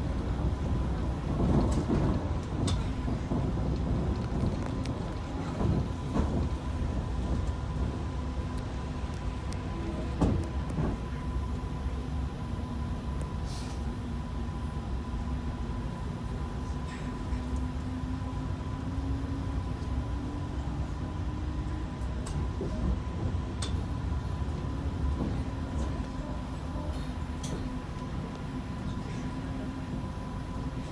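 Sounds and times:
tram wheels rumbling on rail: 0:00.0 - 0:30.9.

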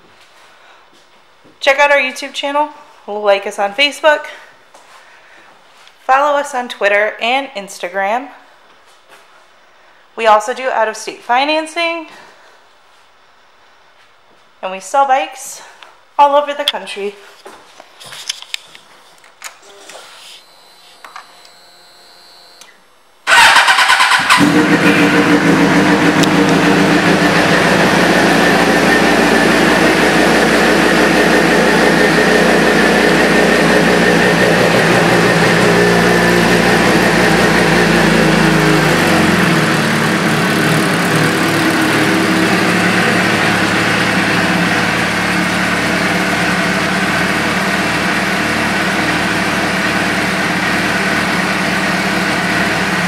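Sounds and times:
motorcycle engine cranking: 0:23.3 - 0:28.1
motorcycle engine idling: 0:23.3 - 0:53.0.

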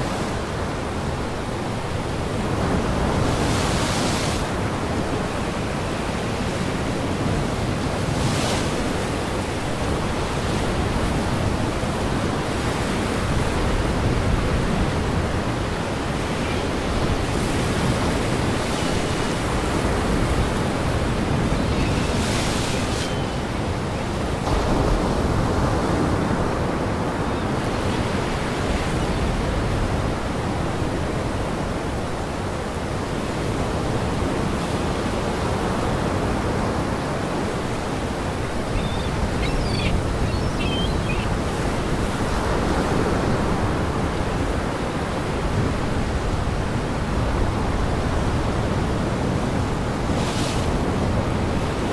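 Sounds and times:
gusting wind: 0:00.0 - 0:51.9.

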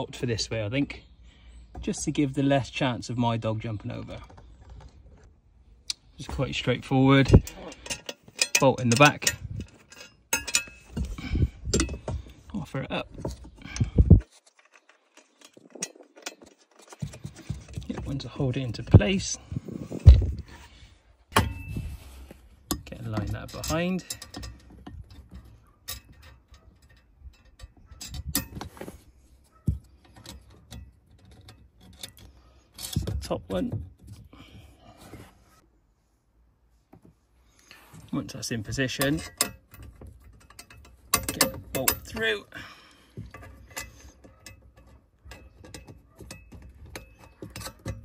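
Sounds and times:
metal clicks and knocks: 0:05.9 - 0:19.3, 0:22.6 - 0:34.3, 0:38.7 - 0:42.5, 0:43.1 - 0:48.0.

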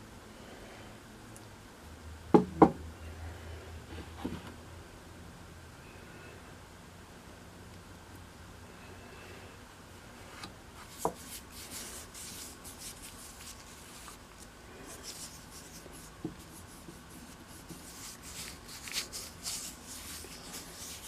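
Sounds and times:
hands rubbing wooden handle: 0:10.8 - 0:21.0.

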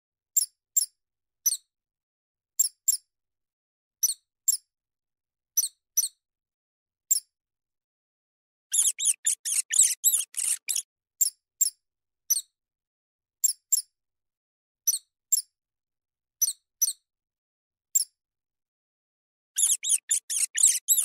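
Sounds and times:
field mouse squeaking: 0:08.7 - 0:10.8, 0:19.6 - 0:21.0.

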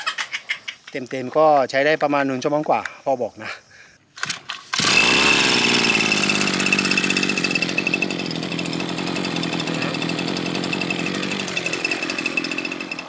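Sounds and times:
brush cutter engine running: 0:04.2 - 0:13.0.

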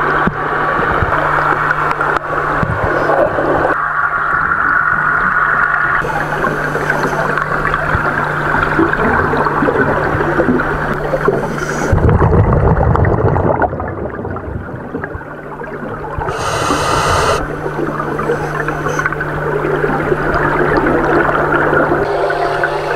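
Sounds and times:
crackling water noise: 0:00.0 - 0:22.9
exhaled bubbles rushing: 0:04.4 - 0:16.7
steady low hum: 0:06.0 - 0:12.1, 0:15.3 - 0:22.9
diver hissing inhale: 0:11.4 - 0:12.0, 0:16.3 - 0:17.2, 0:18.1 - 0:19.2.

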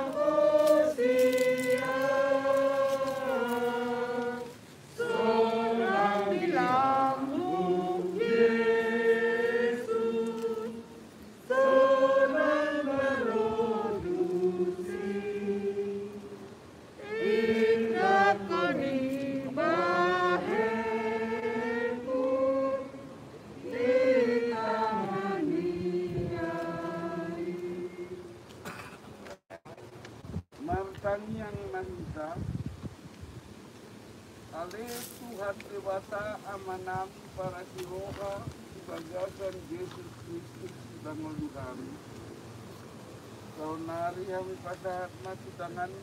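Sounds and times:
congregation singing a hymn: 0:00.0 - 0:28.5, 0:34.9 - 0:40.5.

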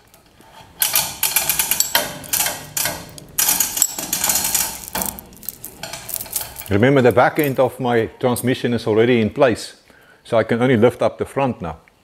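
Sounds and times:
chain rattling through hoist: 0:00.8 - 0:07.6.

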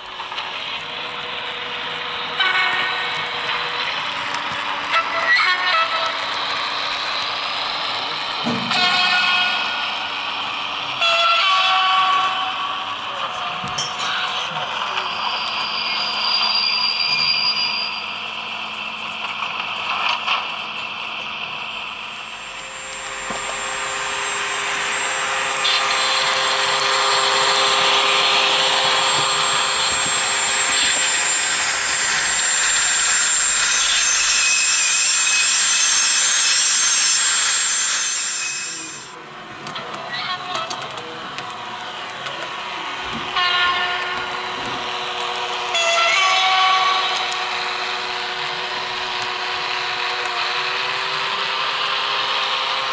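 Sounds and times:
model diesel engine running: 0:00.0 - 0:11.0, 0:18.2 - 0:33.5, 0:46.8 - 0:52.9
steady high whine: 0:00.0 - 0:52.9.

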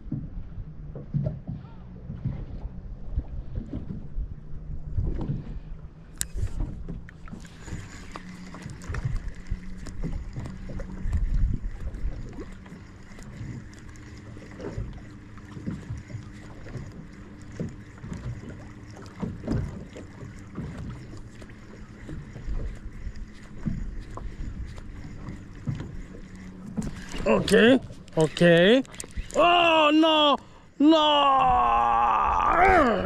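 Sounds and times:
water slapping boat hull: 0:00.0 - 0:33.0
wind on microphone: 0:10.0 - 0:12.6.

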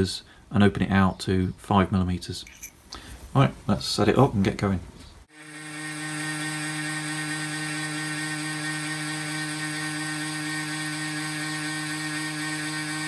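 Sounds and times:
milling machine whine: 0:05.3 - 0:13.0.

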